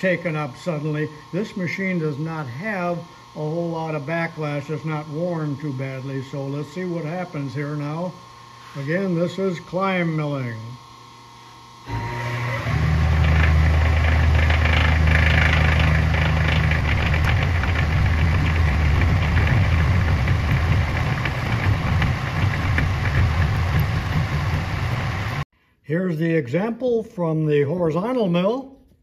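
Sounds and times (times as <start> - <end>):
milling machine drone: 0.0 - 25.5.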